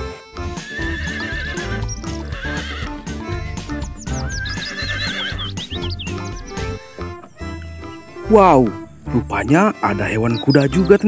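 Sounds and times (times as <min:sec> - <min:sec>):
background music with steady beat: 0:00.0 - 0:11.0
horse whinny: 0:00.4 - 0:08.3.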